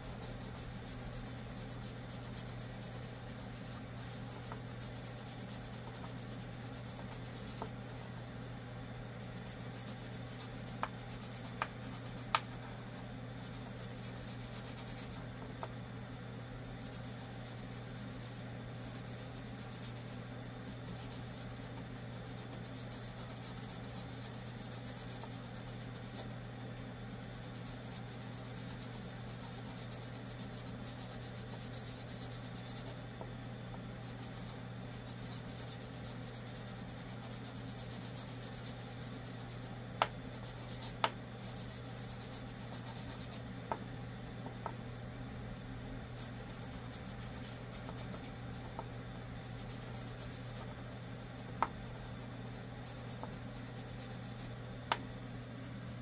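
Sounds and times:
steady low hum: 0.0 - 56.0
marker scratching on wood: 0.1 - 7.7, 40.3 - 43.8, 46.2 - 48.8, 49.4 - 54.5.

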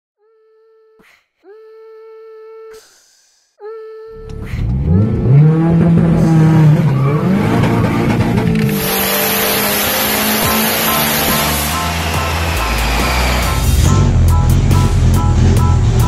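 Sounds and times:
turbocharged engine revving: 4.2 - 16.0
loud rushing noise: 8.1 - 15.1.

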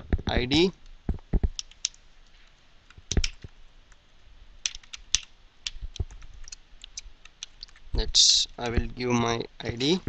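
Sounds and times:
computer keyboard key clicks: 1.4 - 2.0, 2.9 - 3.5, 4.6 - 7.8.

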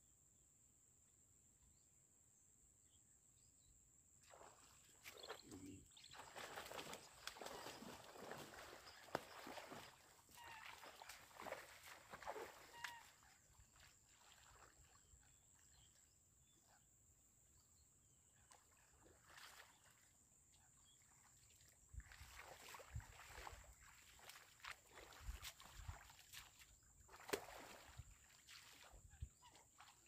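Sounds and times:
faint bird chirps: 1.6 - 22.7, 27.8 - 30.0.

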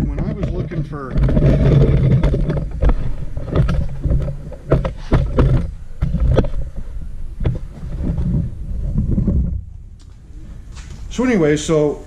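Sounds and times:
knocks and clicks: 0.0 - 9.6
camera handling rumble: 0.1 - 11.1.

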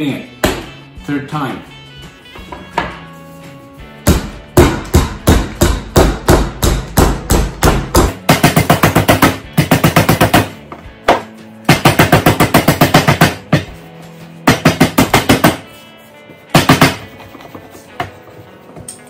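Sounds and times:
rolling pin pounding dough: 3.8 - 18.5.

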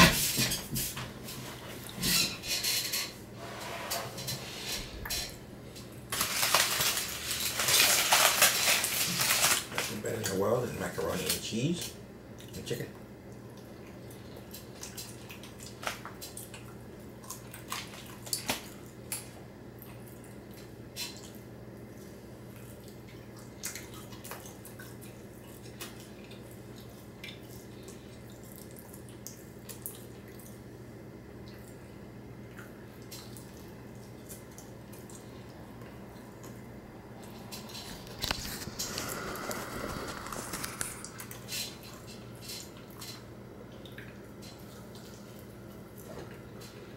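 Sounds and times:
person chewing food: 13.3 - 30.7, 31.4 - 46.9.

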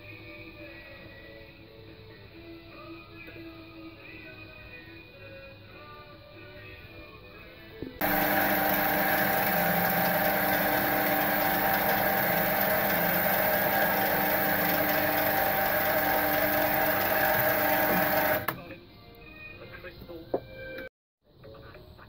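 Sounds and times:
metal lathe motor whining: 8.0 - 18.6.

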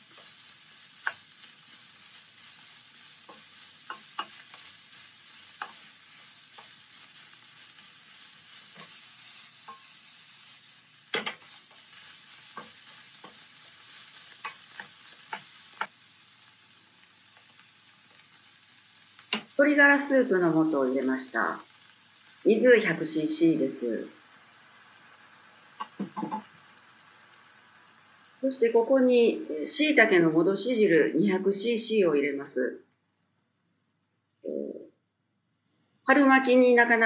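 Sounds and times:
spatula scraping a pan: 0.0 - 15.9
food sizzling in a frying pan: 0.0 - 32.4.

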